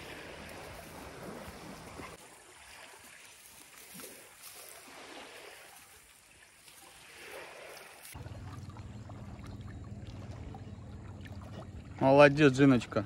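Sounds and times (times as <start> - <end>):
river water splashing: 0.0 - 13.0
low hum: 8.2 - 12.1.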